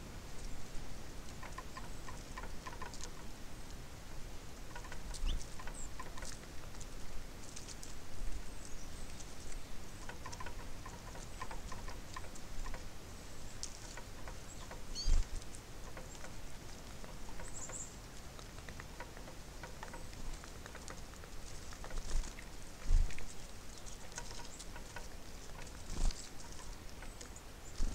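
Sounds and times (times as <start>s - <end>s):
birds pecking at seed: 0.2s - 27.9s
high bird chirps: 14.5s - 15.2s.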